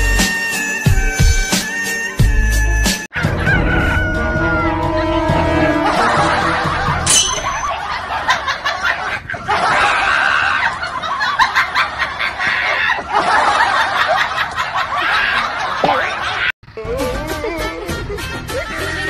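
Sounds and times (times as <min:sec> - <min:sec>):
people laughing and snickering: 0:05.4 - 0:19.0.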